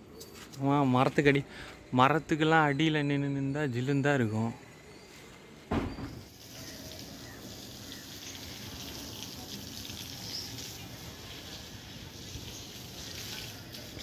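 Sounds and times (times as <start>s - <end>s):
hose spraying water on concrete: 6.3s - 14.0s.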